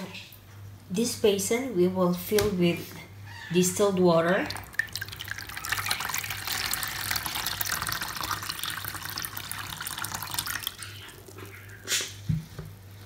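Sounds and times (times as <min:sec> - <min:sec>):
water splashing into basin: 0:04.3 - 0:12.0.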